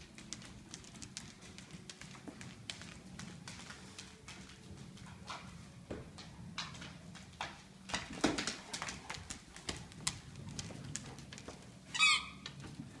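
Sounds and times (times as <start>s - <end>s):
dog claws clicking on wood floor: 0.0s - 12.9s.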